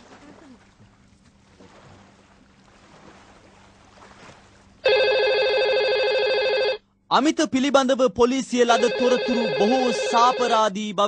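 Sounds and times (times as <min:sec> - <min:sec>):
telephone ringing: 0:04.8 - 0:06.8, 0:08.6 - 0:10.7.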